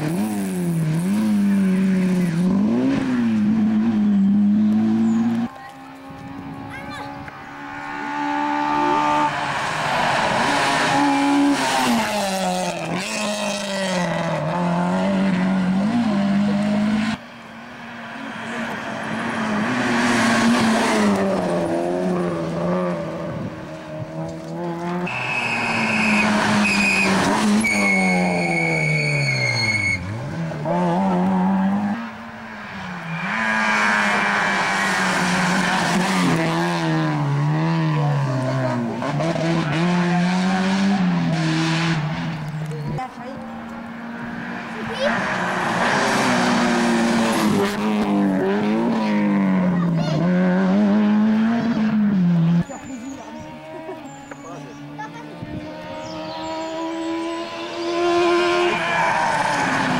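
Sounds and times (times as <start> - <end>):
rally car engines revving: 0.0 - 59.9
tyre squeal: 25.1 - 30.3.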